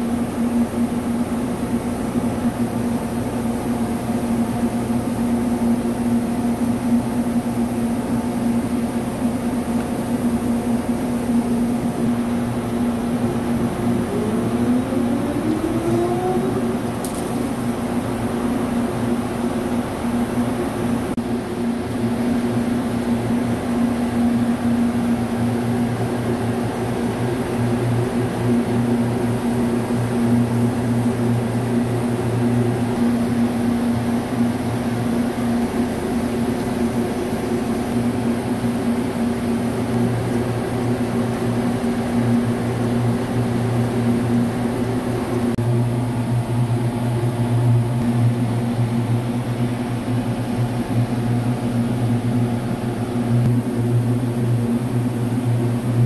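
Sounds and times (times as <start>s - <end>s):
lathe machine hum: 11.2s - 21.1s.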